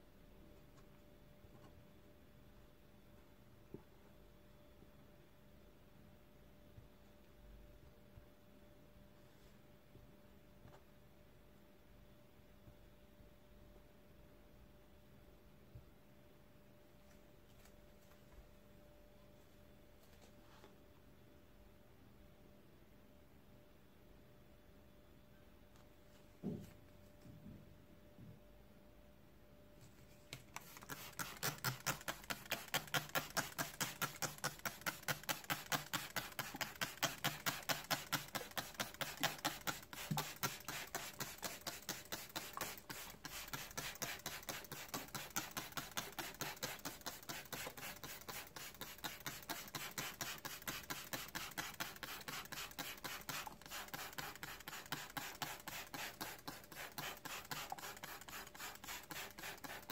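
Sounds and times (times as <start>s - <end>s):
spray bottle hisses: 30.6s - 59.9s.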